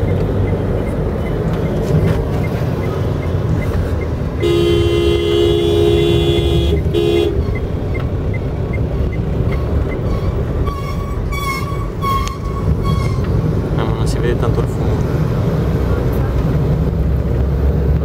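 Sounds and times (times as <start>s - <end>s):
car road and engine rumble: 0.0s - 18.0s
two-tone car horn honking: 4.4s - 7.7s.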